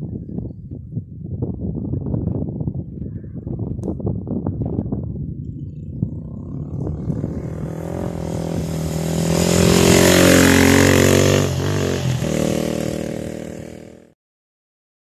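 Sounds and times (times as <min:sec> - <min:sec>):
motorcycle engine passing by: 0:05.7 - 0:14.1.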